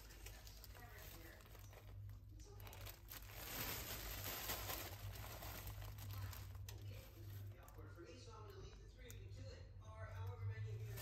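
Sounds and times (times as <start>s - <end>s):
plastic bag crinkling: 0.0s - 8.0s.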